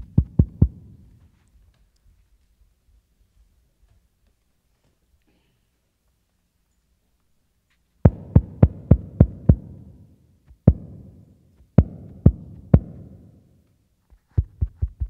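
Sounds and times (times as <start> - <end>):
deep drum beats: 0.0 - 1.2, 8.1 - 10.0, 10.6 - 11.2, 11.8 - 13.3.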